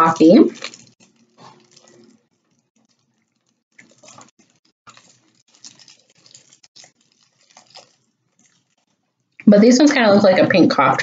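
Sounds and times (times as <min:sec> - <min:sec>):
candy wrappers crinkling: 0:00.0 - 0:09.4.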